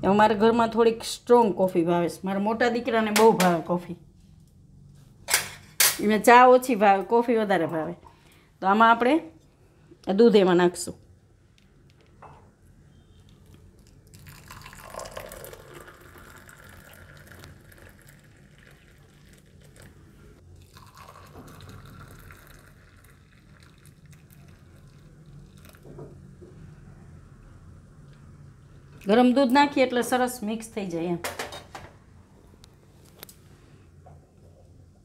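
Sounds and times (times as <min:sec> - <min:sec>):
milk pouring into mugs: 0:13.4 - 0:26.3.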